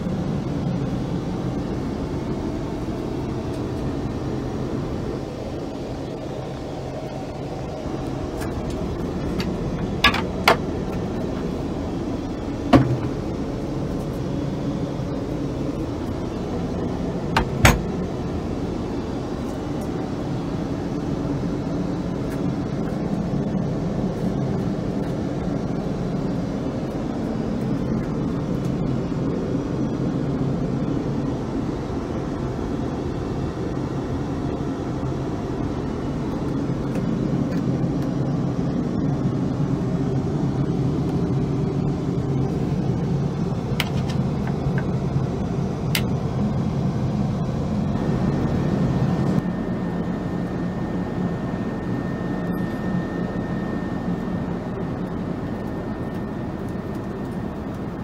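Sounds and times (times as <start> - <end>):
aircraft cabin rumble: 0.0 - 58.0.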